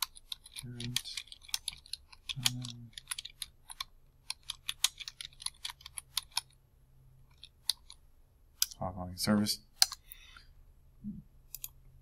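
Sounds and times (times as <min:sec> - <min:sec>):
computer keyboard typing: 0:00.0 - 0:06.6, 0:07.3 - 0:08.0.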